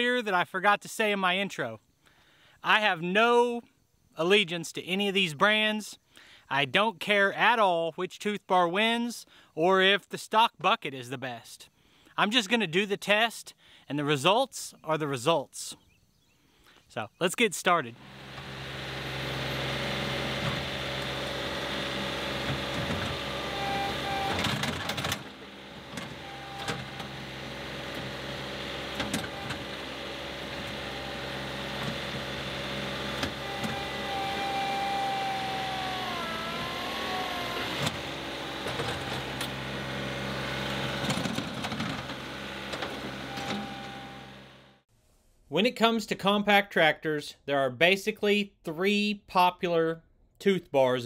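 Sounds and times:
steady whine: 0:17.9 - 0:44.8
tractor diesel engine under load: 0:17.9 - 0:44.8.

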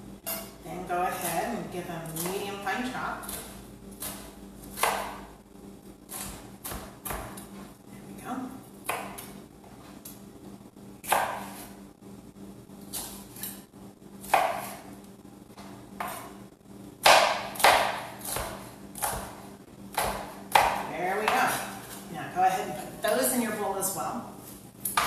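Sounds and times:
knife chopping on cutting board: 0:03.2 - 0:05.3, 0:06.1 - 0:07.5, 0:08.8 - 0:09.3, 0:11.0 - 0:11.7, 0:14.2 - 0:14.9, 0:16.0 - 0:16.4, 0:17.0 - 0:22.0.

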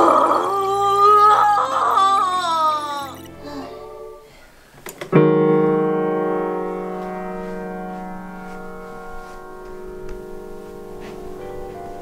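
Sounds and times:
piano chord ringing: 0:05.2 - 0:12.0.

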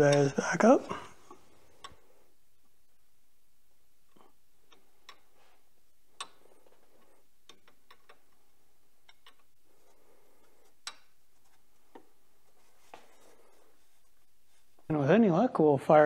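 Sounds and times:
light clicks of tightening fittings: 0:04.1 - 0:05.4, 0:06.1 - 0:08.4, 0:09.0 - 0:09.6.

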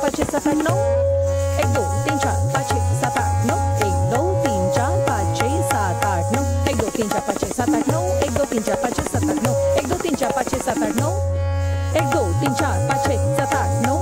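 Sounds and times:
tabla playing: 0:00.0 - 0:14.0
held melodic drone note: 0:00.7 - 0:10.0.

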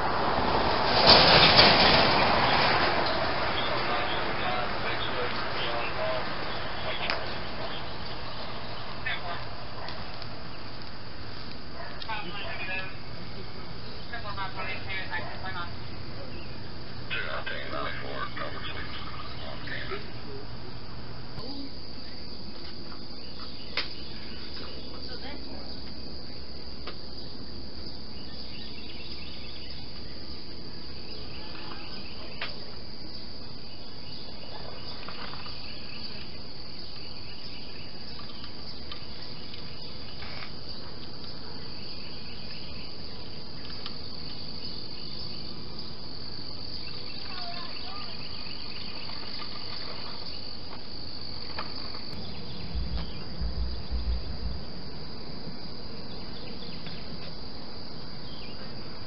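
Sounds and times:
low thumps: 0:52.1 - 0:57.6.

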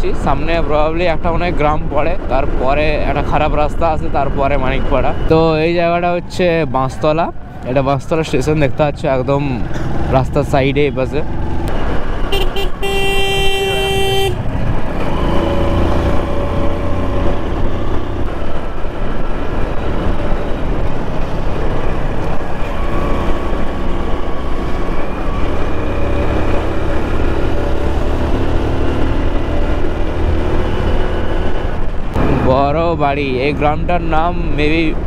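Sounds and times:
vehicle horn: 0:12.3 - 0:14.5
wind rush on microphone: 0:13.4 - 0:28.2, 0:29.0 - 0:32.8.

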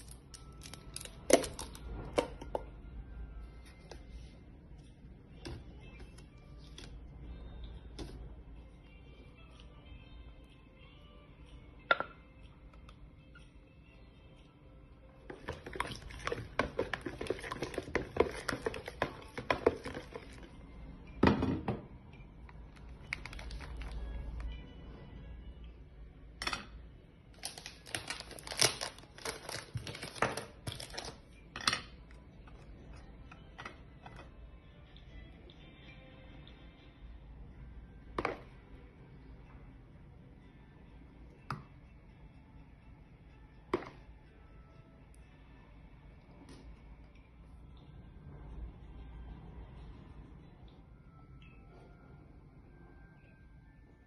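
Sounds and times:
spoon scraping plastic bowl: 0:15.3 - 0:20.5.

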